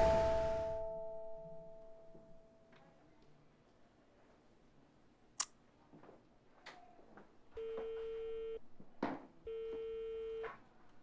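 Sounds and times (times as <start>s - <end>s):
telephone ringback beeps: 9.5s - 10.5s.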